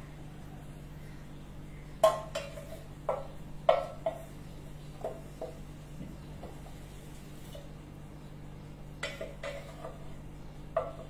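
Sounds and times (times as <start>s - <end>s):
wooden spatula knocking metal pot: 2.0s - 4.3s, 5.0s - 5.6s, 9.0s - 10.1s, 10.7s - 11.0s.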